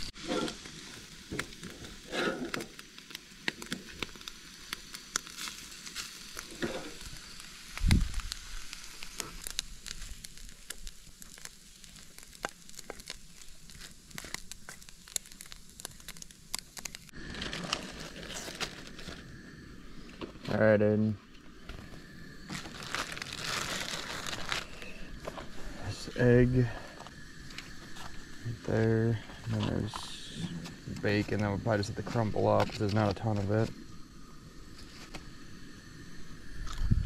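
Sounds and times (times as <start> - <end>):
eggs sizzling in a skillet: 0.0 - 20.6, 21.4 - 37.0
plastic bag rustling: 7.8 - 19.3, 21.8 - 25.6.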